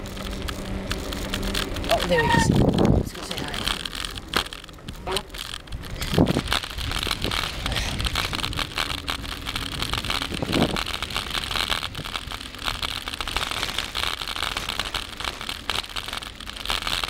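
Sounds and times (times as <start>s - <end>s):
bicycle tyres crunching on gravel: 0.0s - 17.0s
wind on microphone: 2.2s - 3.2s, 5.7s - 12.3s.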